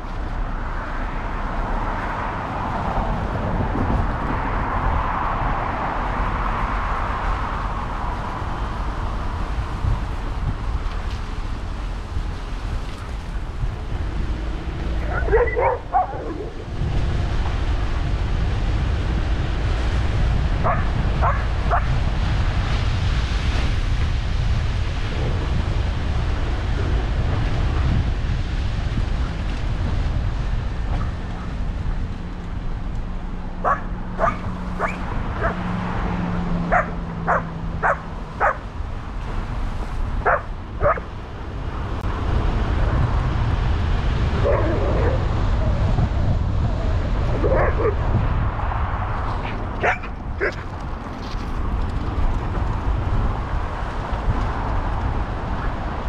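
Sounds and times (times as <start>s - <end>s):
wind rumble on microphone: 0.0s - 56.0s
dog barking: 15.0s - 16.6s, 20.6s - 21.9s, 33.6s - 35.6s, 36.7s - 38.6s, 40.2s - 41.1s, 47.4s - 48.0s, 49.8s - 50.6s.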